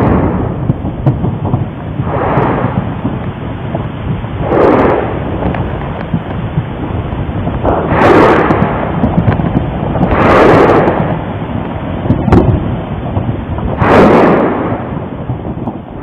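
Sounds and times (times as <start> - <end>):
sharp crack: 0.0 - 3.4, 4.4 - 6.5, 7.5 - 12.6, 13.6 - 15.0
booming surges: 0.0 - 16.0
volcano eruption rumbling: 0.0 - 16.0.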